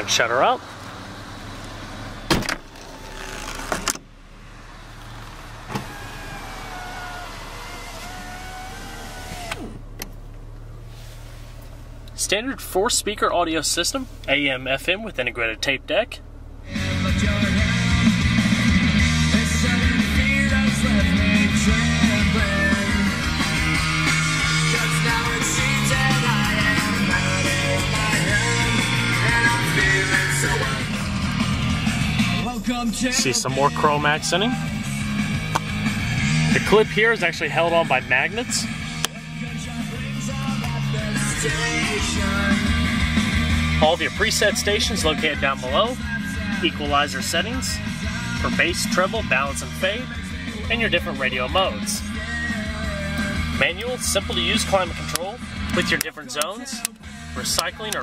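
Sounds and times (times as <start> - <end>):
power window motor whine: 1.5 - 10.4
car door shutting: 1.6 - 4.2, 4.9 - 10.4
rock music with guitar: 16.7 - 56.2.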